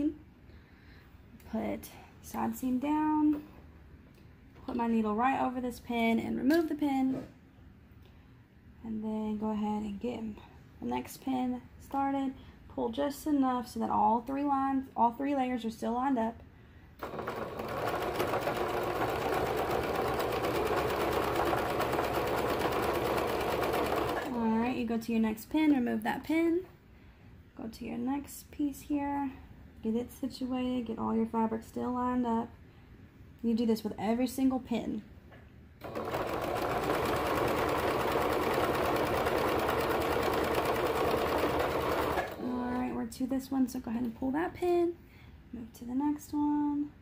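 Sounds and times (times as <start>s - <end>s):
sewing machine running: 17.0s - 24.4s, 35.8s - 42.5s.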